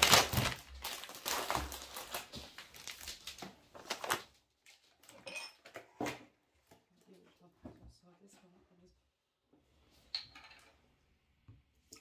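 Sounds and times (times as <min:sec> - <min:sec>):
plastic packets crinkling: 0:00.0 - 0:05.2.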